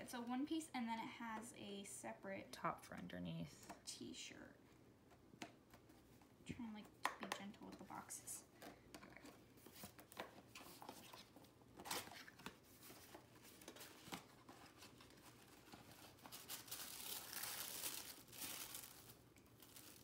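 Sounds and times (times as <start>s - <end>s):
paper packaging rustling: 9.5s - 20.0s.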